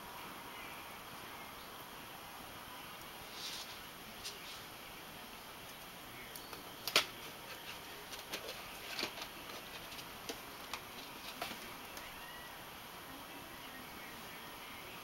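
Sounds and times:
dry stems rustling: 0:03.0 - 0:05.0, 0:05.6 - 0:12.5.

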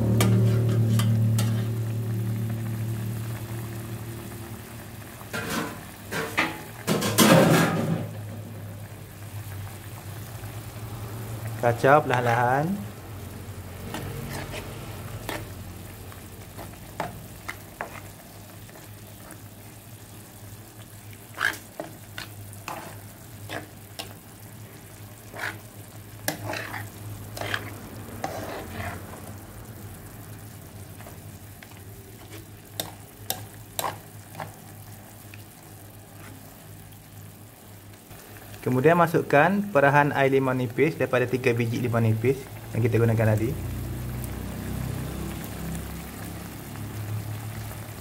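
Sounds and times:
spatula scraping and tapping pan: 0:00.0 - 0:01.8, 0:13.9 - 0:15.6, 0:16.5 - 0:18.2, 0:21.3 - 0:24.2, 0:25.2 - 0:29.2, 0:31.0 - 0:34.6
sauce sizzling in frying pan: 0:00.0 - 0:48.0.

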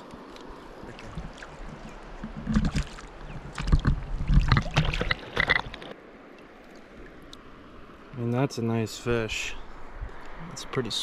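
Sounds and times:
water splashing: 0:00.0 - 0:06.0.

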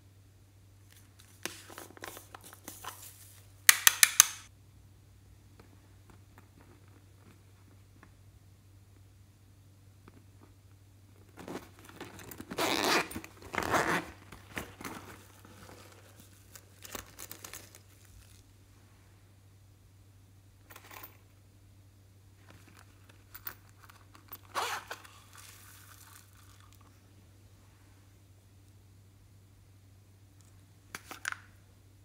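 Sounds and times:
clicks and rustles of pouch: 0:11.3 - 0:18.4
zipper being pulled open: 0:11.4 - 0:16.1, 0:24.4 - 0:25.6.

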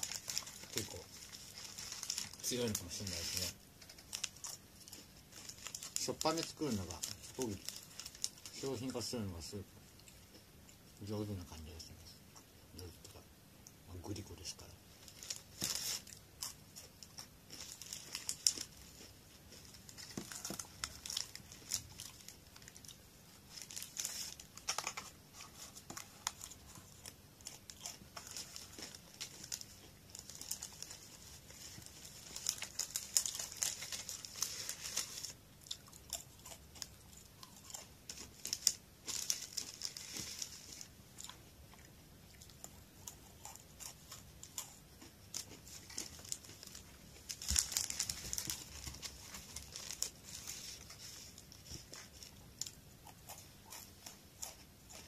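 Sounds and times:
packaging crinkling: 0:00.0 - 0:09.2, 0:17.1 - 0:35.4, 0:37.7 - 0:40.9, 0:45.3 - 0:52.8
crunchy snack being chewed: 0:15.1 - 0:55.0.

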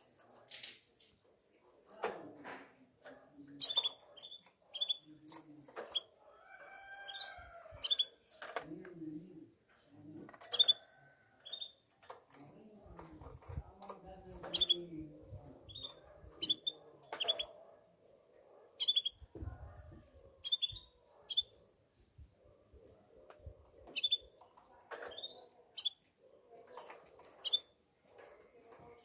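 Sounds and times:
canaries chirping: 0:03.5 - 0:08.5, 0:10.4 - 0:11.9, 0:13.4 - 0:17.6, 0:18.8 - 0:19.3, 0:20.4 - 0:21.6, 0:23.8 - 0:26.0, 0:26.8 - 0:27.8.

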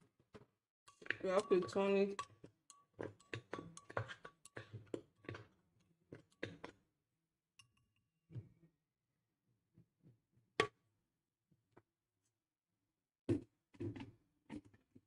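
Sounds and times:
glass blender jar knocking and tapping: 0:00.9 - 0:05.5.

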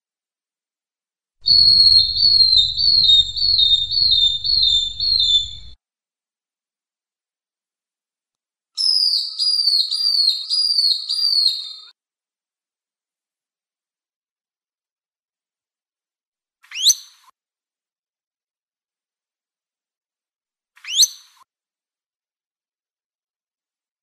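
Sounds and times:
bird whistling high notes: 0:01.5 - 0:05.8, 0:08.8 - 0:11.9.

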